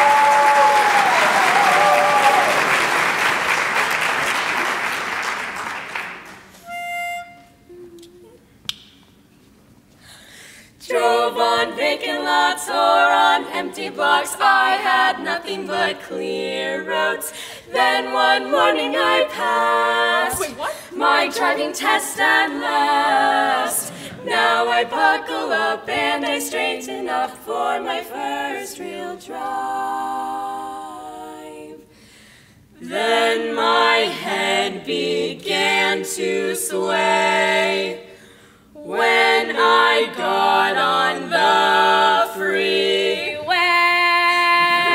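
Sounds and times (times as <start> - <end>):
women singing in close harmony: 10.8 - 31.9, 32.8 - 44.9.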